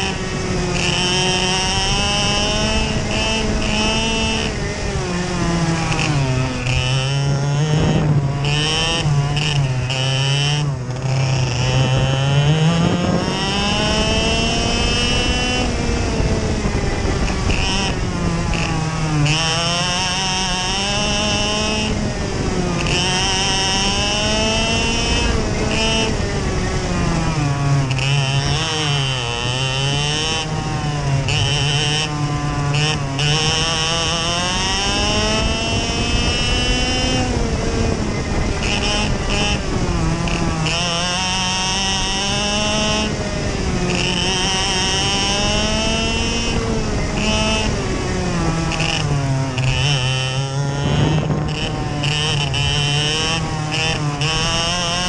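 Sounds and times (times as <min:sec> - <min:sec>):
two-stroke kart engine racing: 0:00.0 - 0:55.0.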